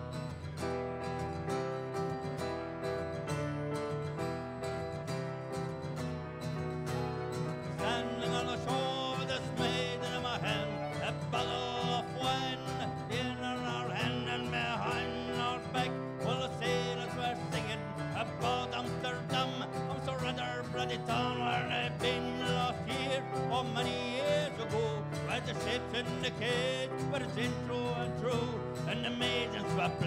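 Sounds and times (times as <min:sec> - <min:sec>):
accordion: 0:00.0 - 0:30.0
keyboard: 0:00.0 - 0:30.0
strummed acoustic guitar: 0:00.0 - 0:30.0.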